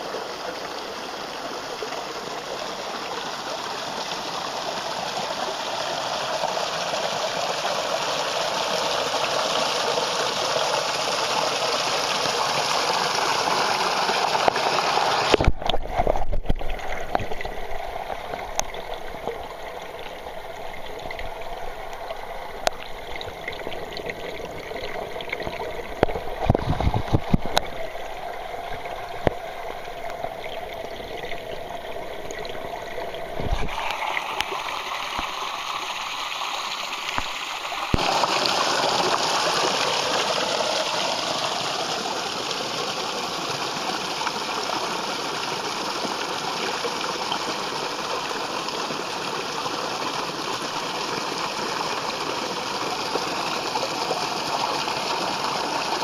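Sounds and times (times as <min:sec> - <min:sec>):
muffled underwater waterfall: 0:00.0 - 0:56.0
waterfall splashing: 0:04.9 - 0:24.6, 0:33.1 - 0:44.8.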